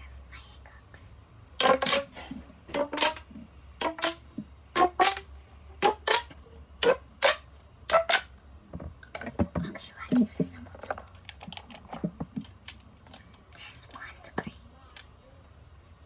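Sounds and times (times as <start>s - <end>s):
plastic pop tube popping: 1.6s - 5.2s, 5.8s - 10.5s.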